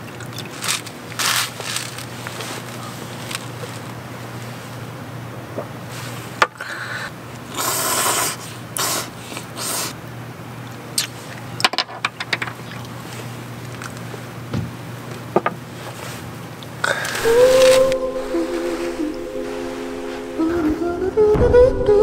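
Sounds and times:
paper and plastic rustling and tearing: 0.3 - 4.6
low steady hum: 16.9 - 22.0.

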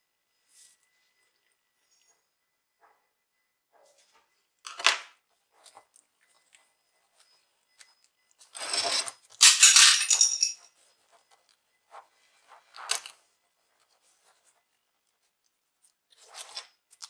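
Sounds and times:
handling clatter and scraping: 8.4 - 10.7.

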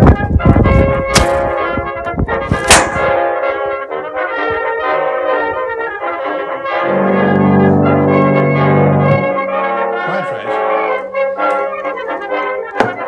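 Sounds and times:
brass-led orchestral music: 0.2 - 13.0
low brass chord: 6.7 - 11.4.

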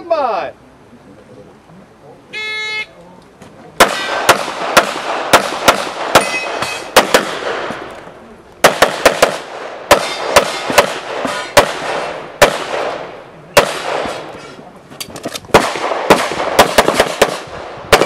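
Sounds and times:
pistol shots with echo: 3.8 - 8.0, 8.6 - 14.4, 15.5 - 18.0.

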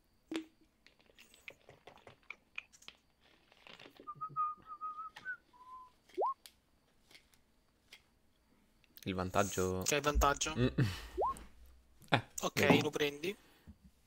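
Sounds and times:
person whistling: 4.1 - 6.4.

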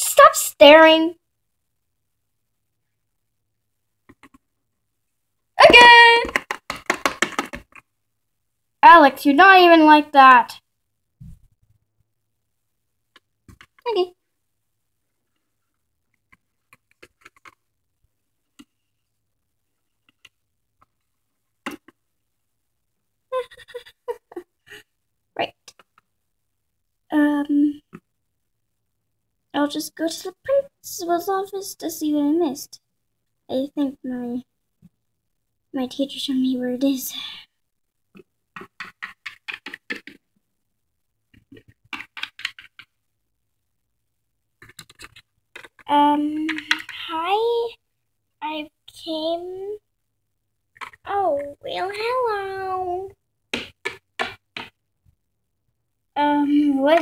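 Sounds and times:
plastic figures tapping and clicking: 4.0 - 4.5, 5.6 - 7.9, 13.1 - 13.9, 16.1 - 17.7, 21.6 - 22.0, 38.1 - 40.4, 41.3 - 43.1, 44.6 - 47.1, 50.7 - 52.2, 53.4 - 54.9
plastic toy tapping on shelf: 6.2 - 7.8, 53.5 - 54.8.

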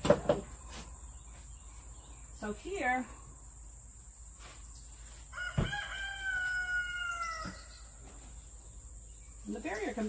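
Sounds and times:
rooster crowing: 5.3 - 7.9.

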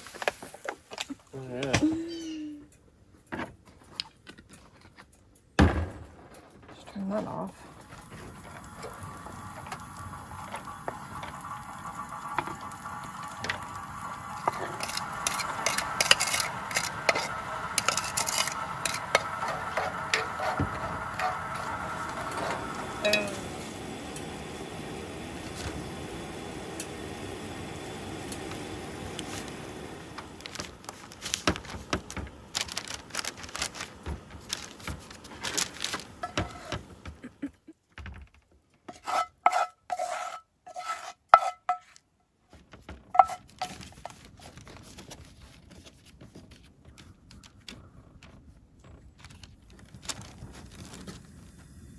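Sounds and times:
dishes and utensils clinking: 43.2 - 43.8.

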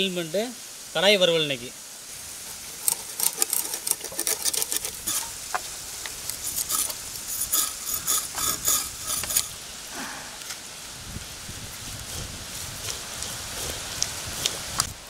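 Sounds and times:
blade scraping fish scales: 2.3 - 10.2.

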